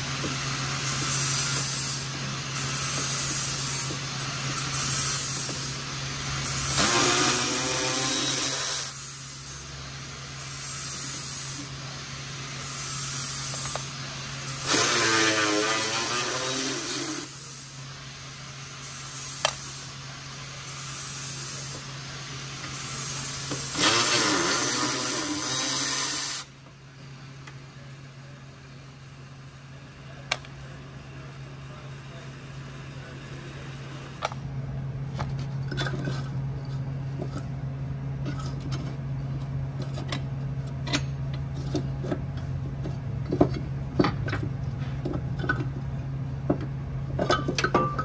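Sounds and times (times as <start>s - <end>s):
power tool spinning bolts: 0.0s - 11.9s, 12.5s - 17.8s, 18.8s - 20.0s, 22.5s - 26.5s
steady low hum: 0.0s - 48.0s.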